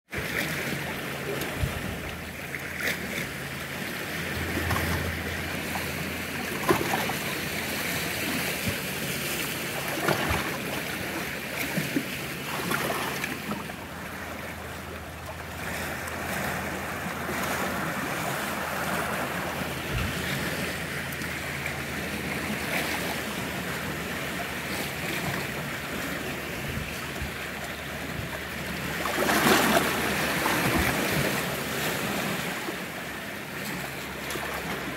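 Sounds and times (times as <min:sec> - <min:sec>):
waves lapping against rocks: 0:00.1 - 0:34.9.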